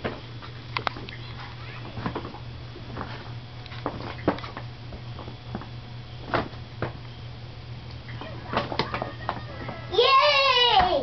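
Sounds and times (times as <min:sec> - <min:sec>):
steady low hum: 0:00.0 - 0:11.0.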